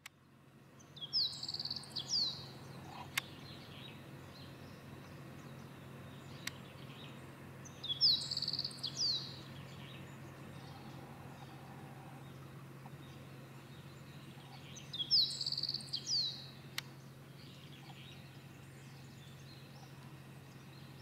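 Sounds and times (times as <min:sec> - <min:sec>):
steady low hum: 0:00.0 - 0:21.0
small bird trilling: 0:01.0 - 0:02.4, 0:07.8 - 0:09.4.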